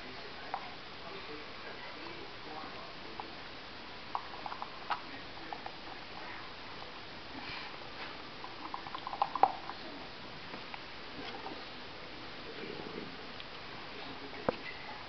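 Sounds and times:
dogs mouthing a toy ball: 4.0 - 11.7.

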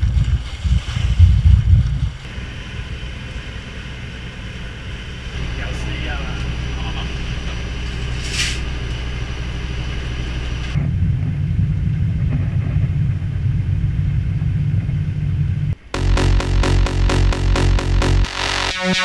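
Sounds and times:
deep engine rumble: 1.3 - 19.0
boat engine droning: 2.3 - 11.0, 13.7 - 19.0.

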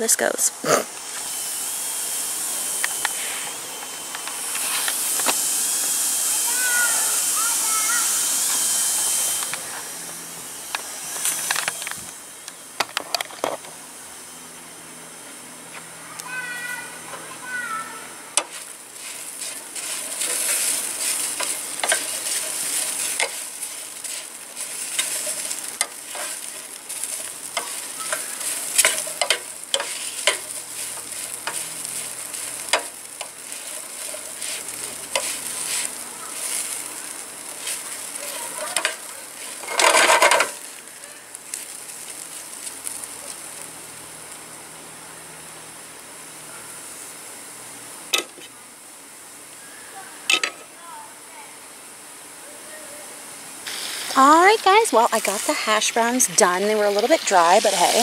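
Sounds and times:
food sizzling in a frying pan: 0.0 - 12.7, 16.1 - 51.0, 52.2 - 58.0
loud noise: 0.6 - 12.4
metal spatula scraping a pan: 18.4 - 32.9.

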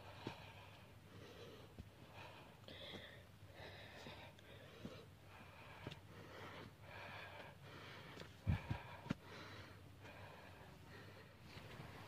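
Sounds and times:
person breathing hard: 0.0 - 12.0.

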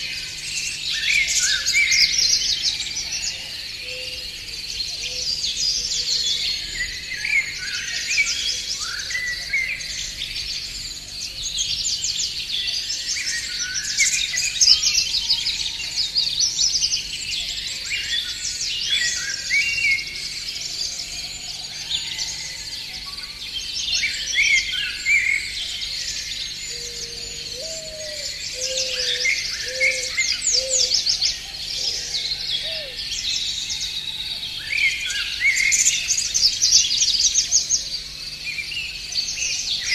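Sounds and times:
songbirds chirping and trilling: 0.0 - 39.9
lower bird call notes: 26.7 - 33.0.

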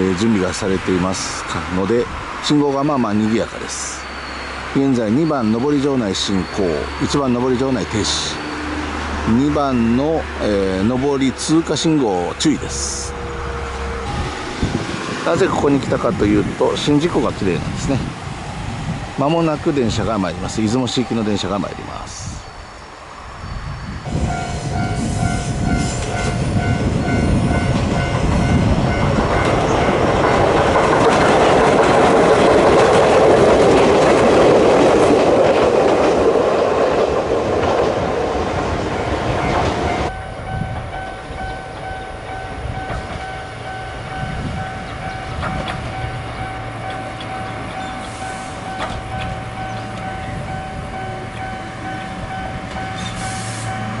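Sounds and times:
steady high tone: 3.4 - 17.4, 19.2 - 30.4, 38.9 - 54.0
train wheels clattering on rails: 24.2 - 54.0.

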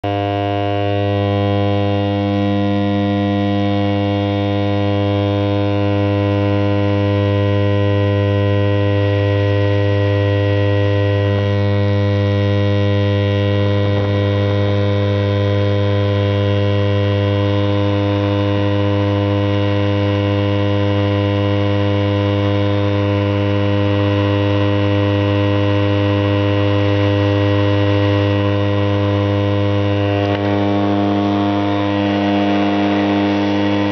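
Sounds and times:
loud electrical hum: 0.0 - 33.9.

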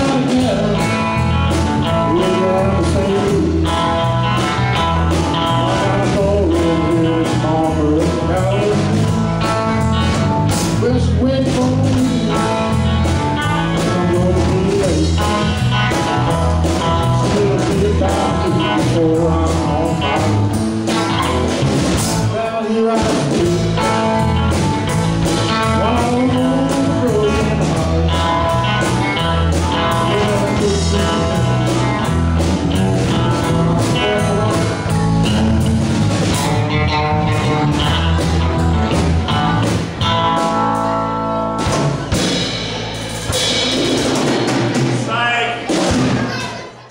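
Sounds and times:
live blues-rock band: 0.0 - 46.9
lead vocal singing: 1.8 - 4.2, 4.8 - 9.5, 10.7 - 24.3, 25.5 - 35.6.

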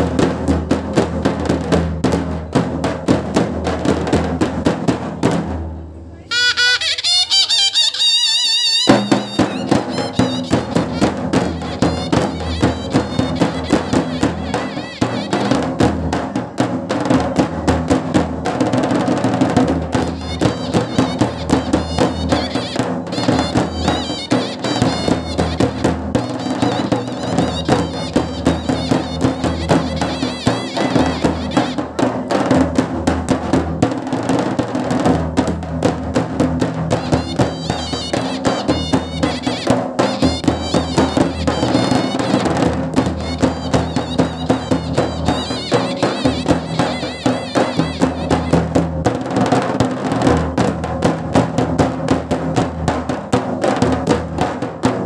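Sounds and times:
drums playing fast rhythm: 0.0 - 5.7, 6.3 - 55.0
brass horn wavering melody: 6.3 - 15.6, 20.2 - 31.8.

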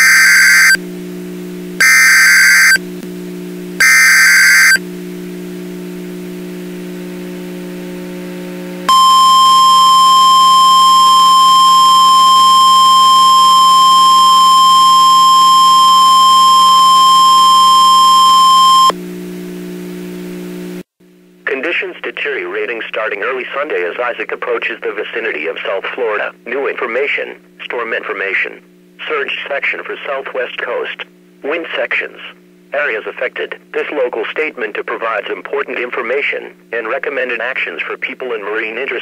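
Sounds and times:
high data tone bursts: 0.0 - 0.8, 1.8 - 2.8, 3.8 - 4.8, 8.9 - 18.9
steady warning alarm tone: 0.0 - 0.8, 1.8 - 2.8, 3.8 - 4.8, 8.9 - 18.9
steady low hum: 0.0 - 38.8.

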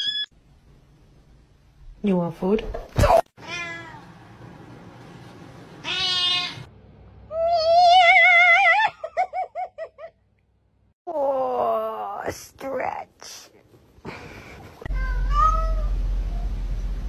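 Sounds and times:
cat meowing: 3.4 - 4.0, 5.8 - 6.7, 14.9 - 16.0
cat yowling: 3.4 - 4.0, 14.9 - 16.0.

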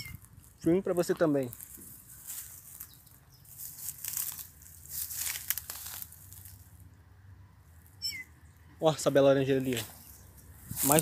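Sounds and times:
leaves and twigs rustling: 0.0 - 6.9, 9.4 - 11.0.

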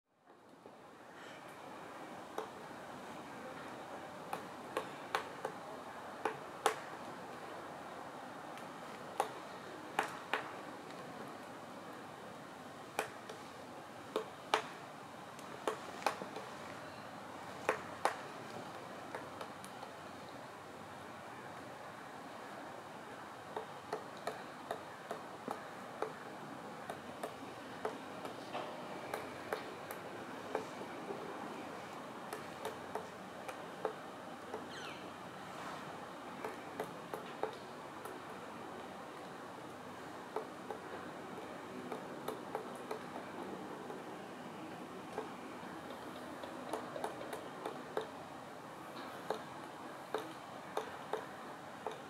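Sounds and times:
woodpecker tapping on tree trunk: 6.2 - 6.8, 8.6 - 11.0, 14.1 - 14.8, 15.4 - 16.6, 17.7 - 19.9, 23.6 - 28.4, 29.1 - 31.2, 32.3 - 35.0, 36.4 - 38.4, 40.3 - 44.1, 45.1 - 48.1, 49.0 - 52.0.

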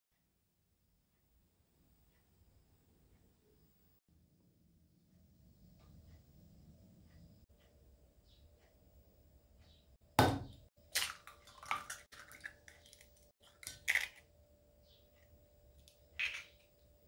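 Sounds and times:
eggshell cracking: 10.2 - 14.3, 15.8 - 16.7.

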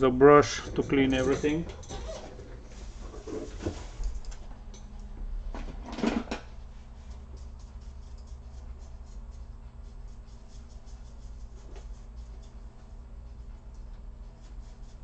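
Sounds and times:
steady low hum: 0.0 - 15.0
brush scratching laptop fans: 0.4 - 1.7, 6.8 - 15.0.

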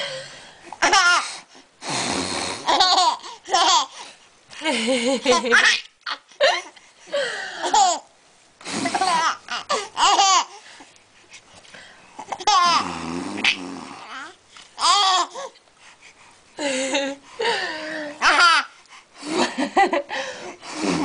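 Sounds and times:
baby laughing and babbling: 0.7 - 1.3, 2.6 - 4.0, 7.6 - 8.1, 8.8 - 10.6, 12.2 - 15.6, 18.0 - 18.8.

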